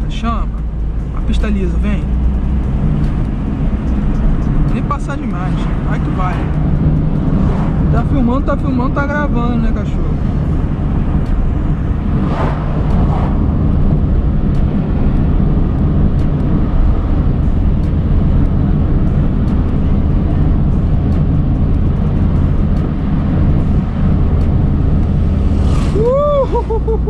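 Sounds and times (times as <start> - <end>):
car engine drone: 0.0 - 27.0
tyre and road noise: 0.0 - 27.0
brief whoosh: 11.8 - 13.7, 25.3 - 26.2.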